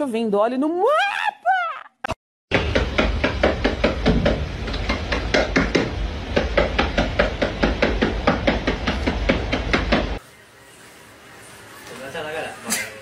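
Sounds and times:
rapid even knocking: 2.5s - 10.2s.

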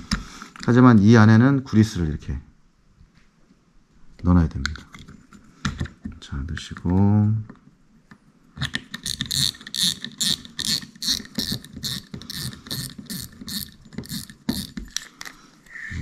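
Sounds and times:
fishing reel drag clicking: 9.1s - 14.7s.

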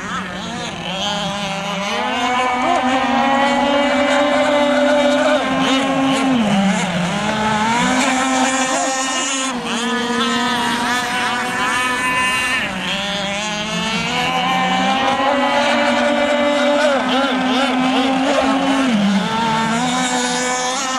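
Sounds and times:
model speedboat engines racing: 0.0s - 20.9s.

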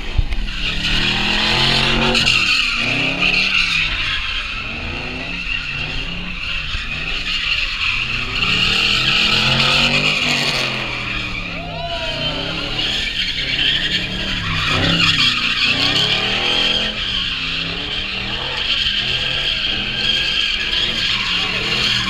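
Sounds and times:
car engine revving: 0.0s - 22.0s
tires squealing: 0.0s - 22.0s.

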